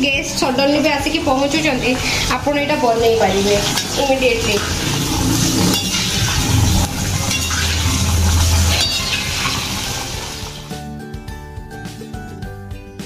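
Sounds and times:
background music: 0:00.0 - 0:13.0
vegetables deep-frying in oil: 0:01.0 - 0:10.7
metal skimmer clinking on pan: 0:05.6 - 0:06.5, 0:07.2 - 0:10.0.

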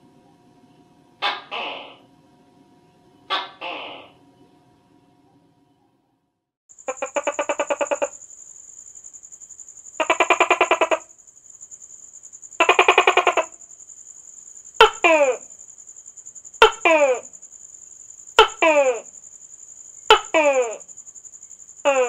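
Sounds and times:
gecko chirping: 0:01.2 - 0:02.0, 0:03.3 - 0:04.2, 0:06.8 - 0:08.3, 0:10.0 - 0:11.2, 0:12.6 - 0:13.7.

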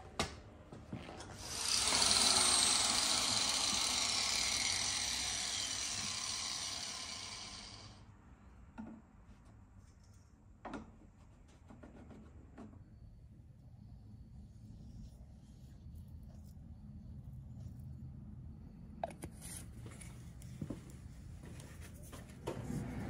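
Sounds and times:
power tool whirring: 0:01.3 - 0:08.0.

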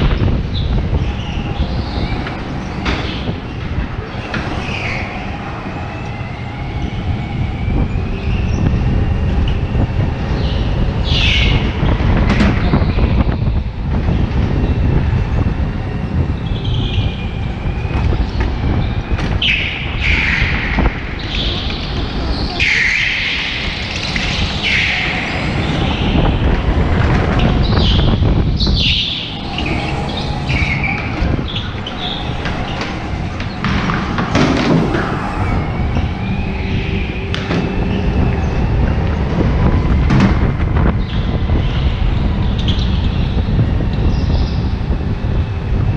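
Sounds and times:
go-kart engine rumble: 0:00.0 - 0:45.9
tyres squealing: 0:23.6 - 0:37.3.

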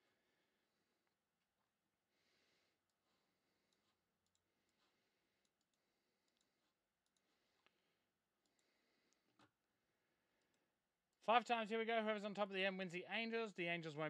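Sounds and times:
soft clicks: 0:03.7 - 0:07.8.

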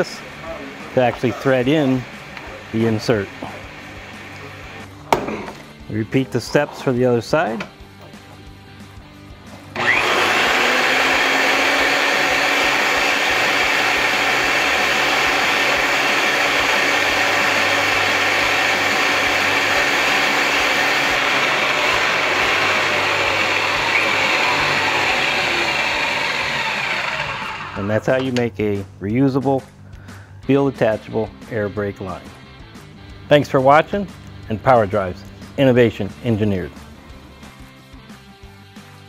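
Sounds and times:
machine motor whirring: 0:09.8 - 0:27.9.

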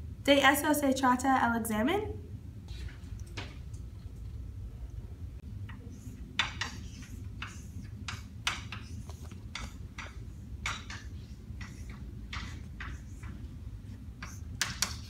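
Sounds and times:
low room hum: 0:00.0 - 0:15.0
chalk tapping and scraping on chalkboard: 0:05.6 - 0:15.0.

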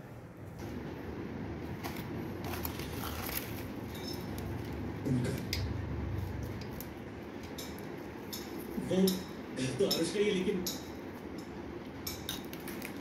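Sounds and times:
low steady hum: 0:00.0 - 0:13.0
metal spoon clinking on dishes: 0:07.4 - 0:12.5.

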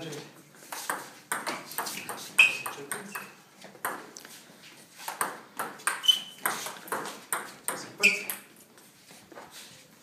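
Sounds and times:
table tennis ball hitting bats: 0:00.7 - 0:04.2, 0:05.1 - 0:08.5.

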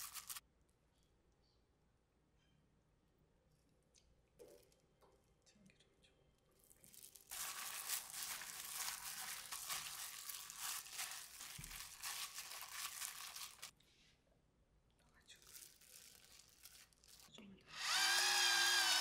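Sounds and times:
plastic glove crinkling: 0:00.0 - 0:00.4, 0:06.6 - 0:13.8, 0:15.3 - 0:17.4.

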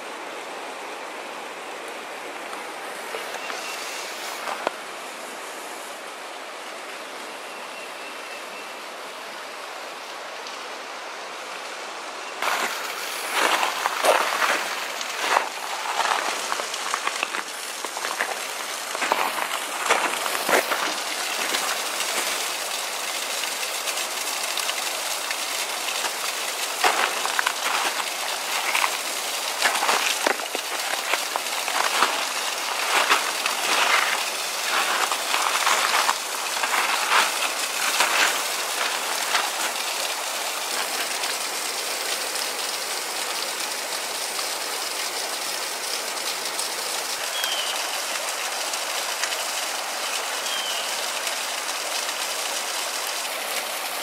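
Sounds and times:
creek and waterfall rushing: 0:00.0 - 0:54.0.

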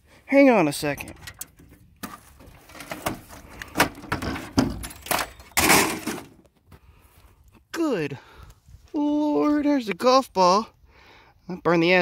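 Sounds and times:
metal case clattering: 0:00.9 - 0:06.4
metallic knocks and rattles: 0:01.0 - 0:06.4.

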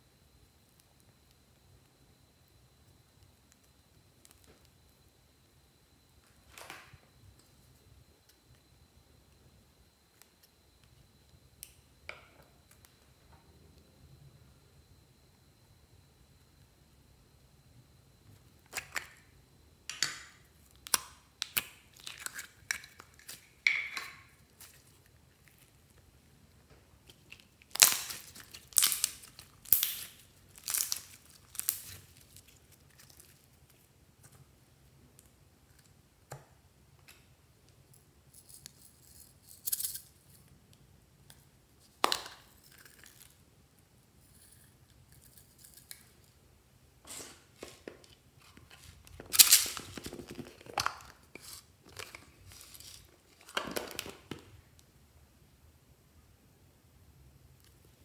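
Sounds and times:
plastic containers crinkling: 0:47.1 - 0:54.6.

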